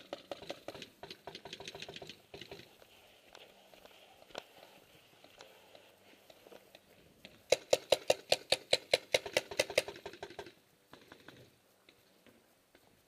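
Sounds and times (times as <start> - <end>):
paintball marker firing: 7.5 - 11.4.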